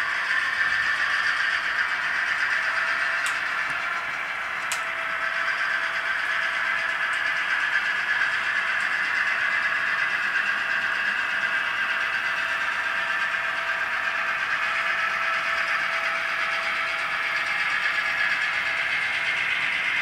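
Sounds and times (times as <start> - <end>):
model train running on track: 0.0 - 20.0.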